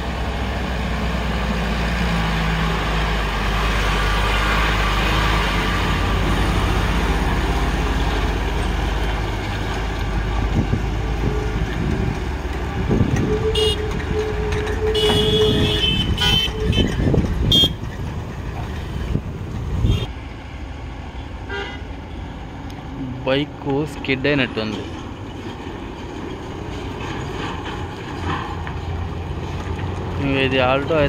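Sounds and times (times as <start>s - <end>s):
mixed traffic: 0.0s - 31.0s
truck diesel engine running: 0.0s - 31.0s
long horn blast: 13.2s - 17.8s, 21.4s - 21.9s
vehicle horn toots: 13.2s - 17.8s, 19.8s - 20.1s, 21.5s - 21.9s.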